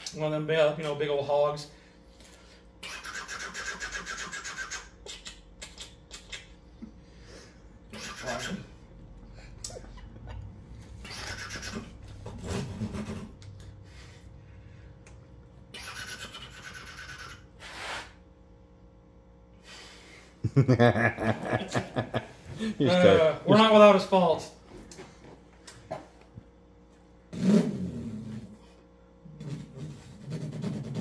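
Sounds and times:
man imitating motorcycle engine: 9.6 - 13.4.

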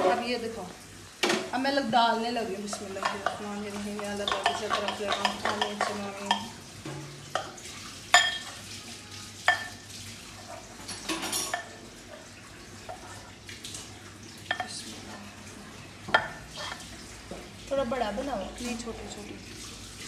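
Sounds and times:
spoon clinking against bowl: 4.0 - 6.5, 8.1 - 8.6, 9.5 - 9.8, 10.8 - 11.8.

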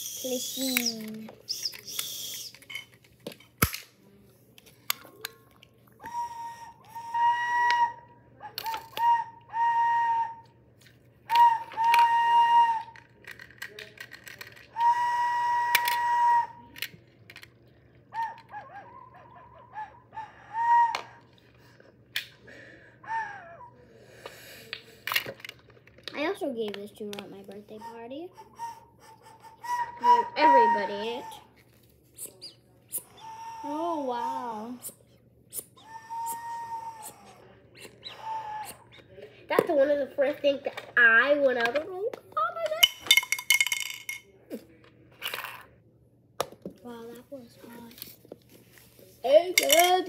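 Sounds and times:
plastic toy whistle toots: 0.0 - 3.0, 6.0 - 10.6, 11.3 - 17.0, 19.7 - 21.4, 27.8 - 31.6, 32.2 - 39.2, 42.8 - 44.2, 49.6 - 50.0.

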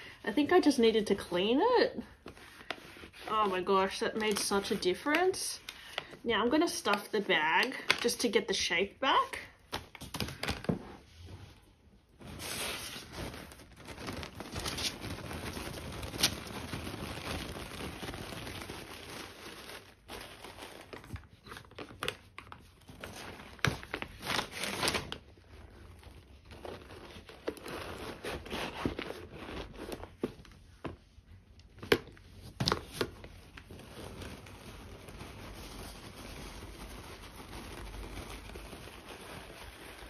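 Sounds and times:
tissue paper crinkling: 9.6 - 31.4, 32.4 - 40.0.

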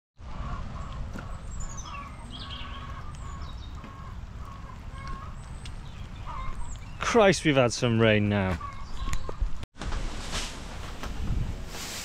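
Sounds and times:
small birds chirping: 0.3 - 9.6.

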